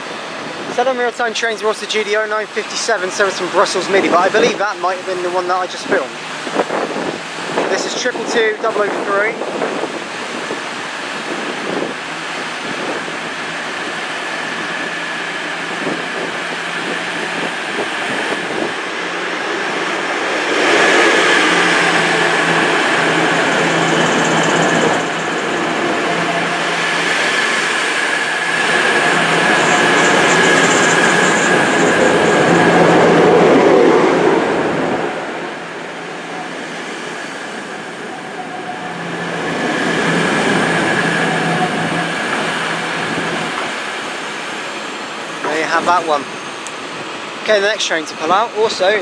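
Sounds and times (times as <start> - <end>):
train rumble: 0.0 - 49.0
diesel engines humming: 13.4 - 47.0.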